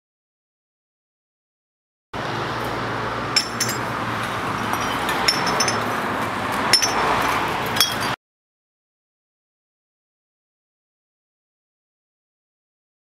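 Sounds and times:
sharp ringing clinks: 0:03.4 - 0:03.9, 0:04.6 - 0:05.9, 0:06.7 - 0:07.0, 0:07.8 - 0:08.2.

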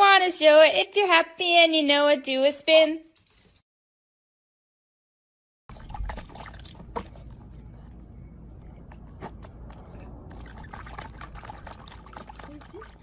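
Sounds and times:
low background rumble: 0:05.7 - 0:13.0
puppy splashing in water: 0:05.7 - 0:13.0.

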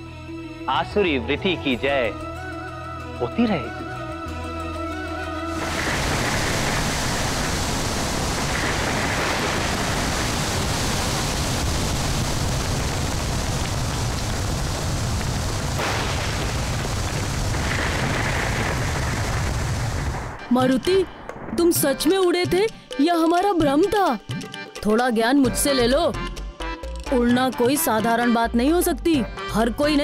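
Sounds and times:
storm wind rushing: 0:05.5 - 0:22.9.

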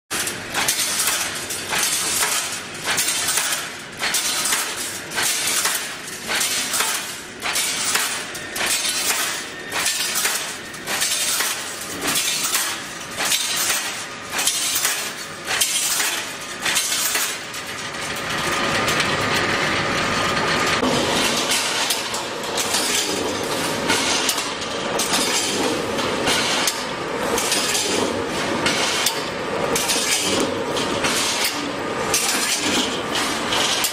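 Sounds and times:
wire mesh machine clanking: 0:00.1 - 0:33.9.

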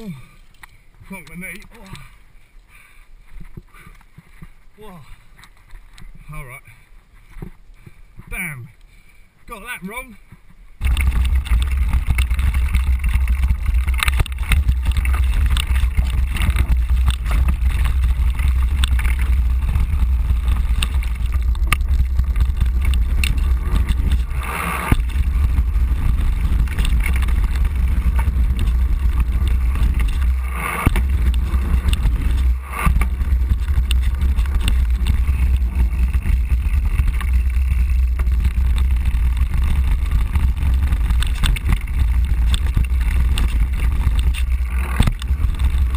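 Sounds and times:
bike rattling: 0:00.0 - 0:08.6, 0:09.6 - 0:45.9
tyres crunching on gravel: 0:09.5 - 0:45.9
wind rumble on microphone: 0:10.3 - 0:45.9.

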